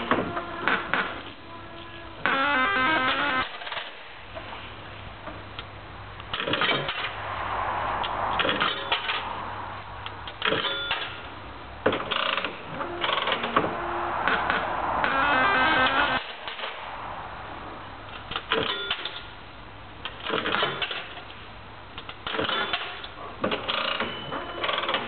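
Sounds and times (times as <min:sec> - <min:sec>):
sharp clicks and clunks: 0:00.0 - 0:01.4, 0:02.2 - 0:04.5, 0:05.2 - 0:07.2, 0:08.0 - 0:09.3, 0:10.0 - 0:16.8, 0:18.1 - 0:19.4, 0:20.0 - 0:25.0.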